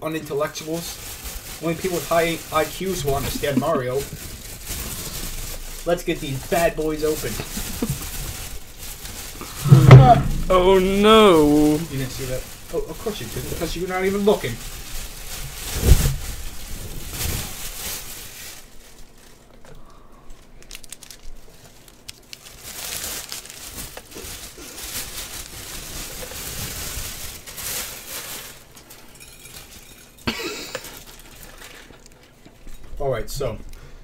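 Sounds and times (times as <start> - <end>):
plastic bag crinkling: 0.4 - 19.6, 20.4 - 32.7
short sharp knock: 9.5 - 11.0.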